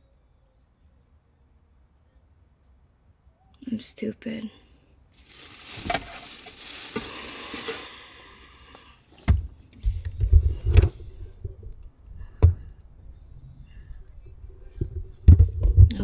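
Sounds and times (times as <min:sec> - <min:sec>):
crinkling rustle: 0:05.1 - 0:08.9.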